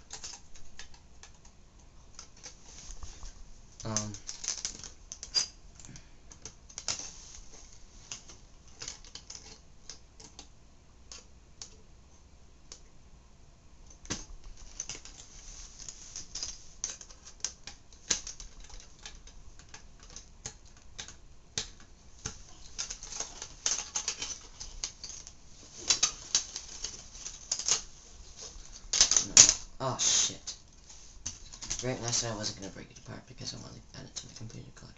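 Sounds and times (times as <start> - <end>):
plastic parts clicking and snapping: 0.0 - 2.6, 3.8 - 7.1, 8.1 - 10.5, 11.1 - 11.8, 13.8 - 29.7.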